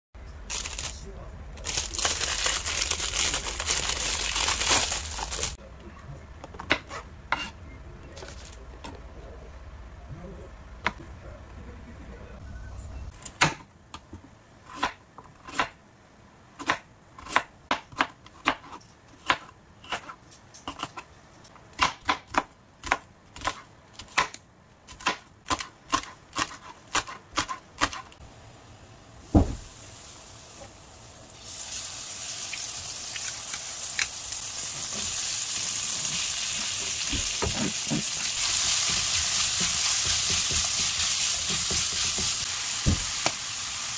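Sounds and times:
vegetables sizzling in a wok: 28.2s - 43.9s
heavy thump: 29.3s - 29.7s.

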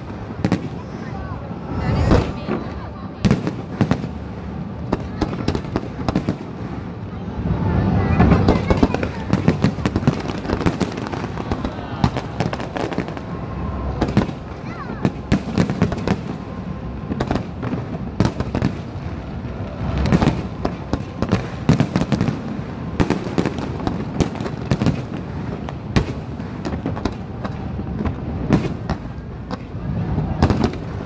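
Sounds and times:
low rumble: 6.0s - 23.0s.

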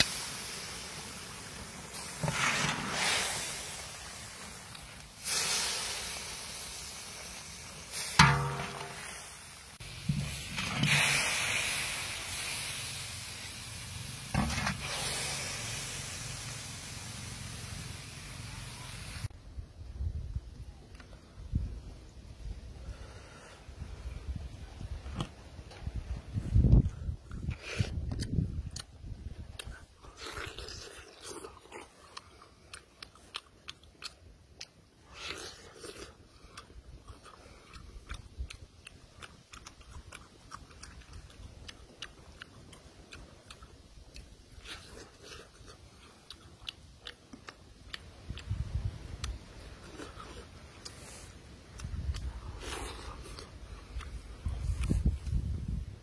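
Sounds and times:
hot wok hissing: 0.0s - 19.3s
man chewing with wet mouth clicks: 26.7s - 55.8s
crunching bite: 26.8s - 55.6s.

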